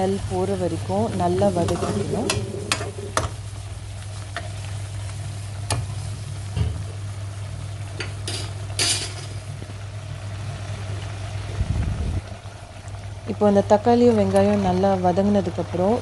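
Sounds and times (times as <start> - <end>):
low hum: 0.0 - 4.1
paste sizzling in a metal pan: 0.2 - 6.4.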